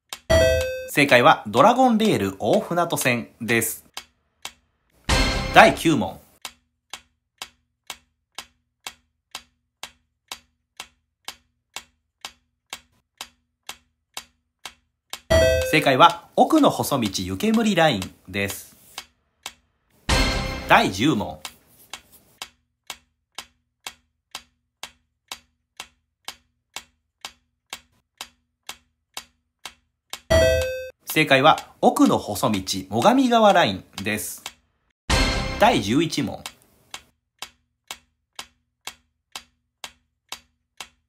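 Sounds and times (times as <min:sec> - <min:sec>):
low tone under ticks: 0:00.1 - 0:01.2
countdown timer ticking: 0:00.1 - 0:03.2, 0:05.1 - 0:06.1, 0:15.2 - 0:18.1, 0:20.1 - 0:21.5, 0:30.2 - 0:34.4, 0:35.1 - 0:36.5.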